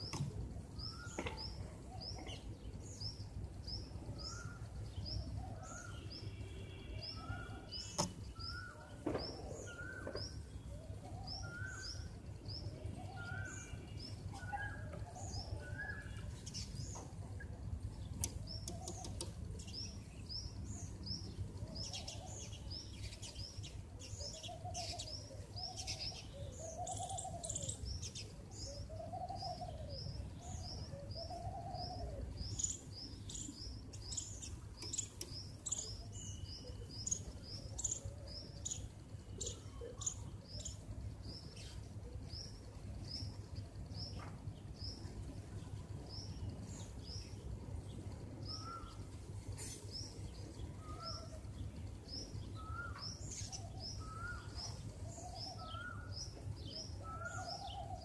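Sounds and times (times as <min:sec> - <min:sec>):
small birds chirping: 0:00.0 - 0:58.0
low arched bird calls: 0:18.1 - 0:19.8, 0:48.5 - 0:51.4.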